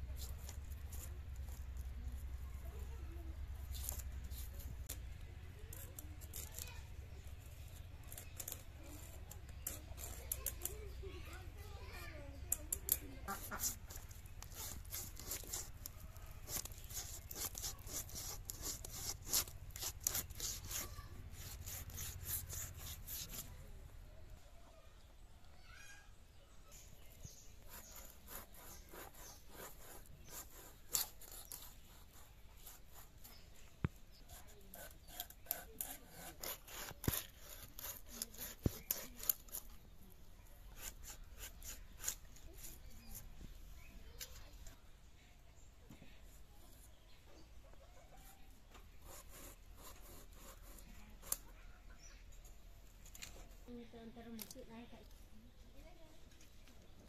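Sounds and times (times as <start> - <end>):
fish scraping against blade: 12.5 - 23.5, 34.2 - 39.8.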